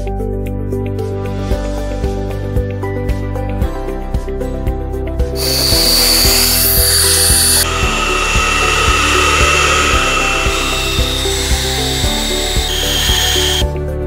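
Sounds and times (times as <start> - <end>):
background music with steady beat: 0.0 - 14.0
hair dryer blowing: 5.4 - 13.7.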